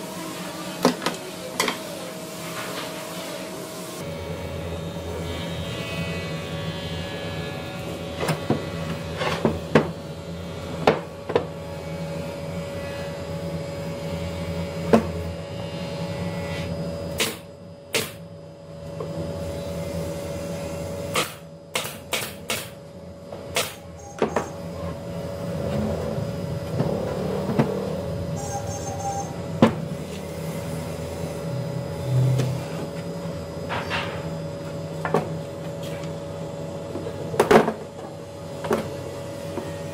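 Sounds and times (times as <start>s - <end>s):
nail gun firing into wood: 21.2s - 22.7s.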